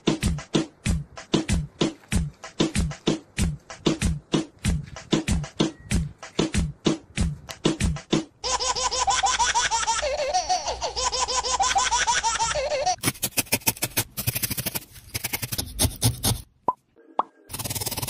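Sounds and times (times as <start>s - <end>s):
fast rhythmic beat: 0.0s - 8.4s
high-pitched rapid laughter: 8.4s - 13.0s.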